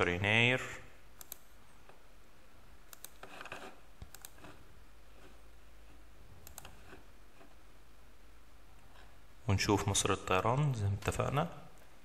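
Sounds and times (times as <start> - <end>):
low room hum: 0.0 - 12.0
computer mouse clicking: 1.2 - 2.0, 2.9 - 4.6, 6.4 - 7.5.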